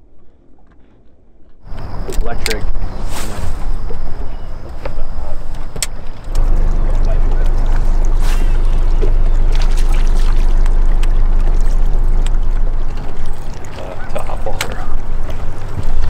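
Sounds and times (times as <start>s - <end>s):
brief hiss: 3.0s - 3.7s
electric motor humming: 6.0s - 16.0s.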